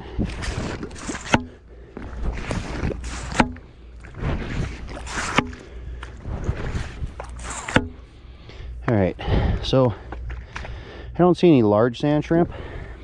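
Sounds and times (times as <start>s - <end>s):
pump sucking and gurgling: 0.0s - 8.0s
sharp pops: 1.0s - 1.6s, 3.0s - 3.7s, 5.0s - 5.6s, 7.3s - 8.0s.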